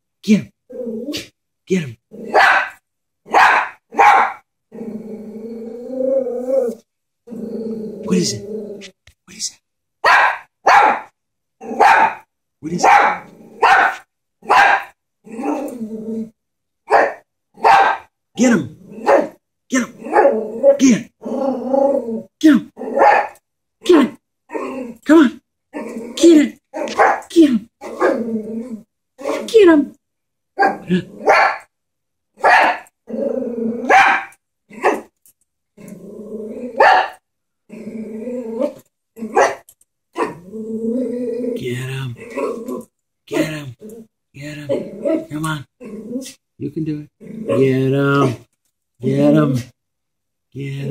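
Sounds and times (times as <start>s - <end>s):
dog growling: 0.7s - 1.3s, 4.7s - 9.0s, 12.9s - 13.8s, 15.2s - 16.4s, 18.7s - 23.1s, 24.5s - 25.1s, 25.7s - 27.1s, 27.8s - 29.5s, 30.6s - 31.4s, 33.0s - 35.1s, 35.8s - 37.0s, 37.7s - 39.6s, 40.2s - 46.4s, 47.1s - 49.8s
small dog yapping: 2.3s - 4.4s, 10.0s - 11.1s, 11.8s - 12.2s, 12.8s - 14.9s, 22.9s - 23.4s, 26.7s - 28.2s, 32.4s - 32.8s, 33.8s - 35.1s, 36.8s - 37.2s.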